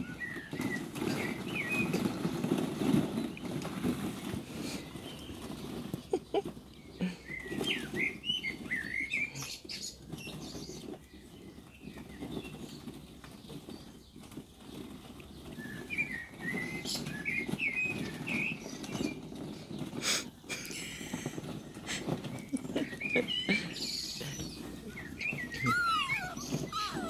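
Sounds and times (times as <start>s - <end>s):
puppies scuffling on blanket: 0.0s - 27.0s
quick high bird chirps: 25.2s - 27.0s.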